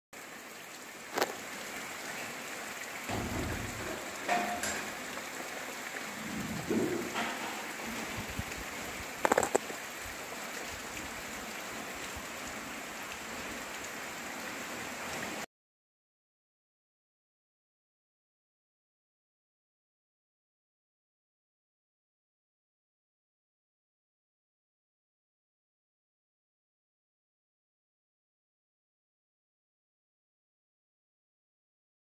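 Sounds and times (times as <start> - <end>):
heavy rain on roofs and foliage: 0.2 - 15.5
sharp knocks: 3.1 - 5.0, 6.6 - 8.1.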